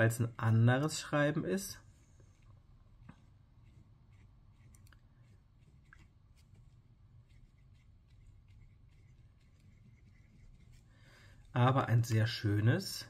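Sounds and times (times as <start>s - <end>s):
low room hum: 0.0s - 13.0s
fountain pen scratching on paper: 2.3s - 11.5s.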